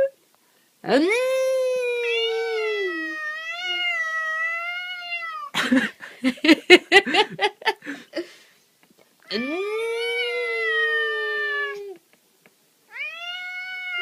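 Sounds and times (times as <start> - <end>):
cat yowling: 1.9 - 5.5, 9.3 - 12.0, 12.9 - 14.0.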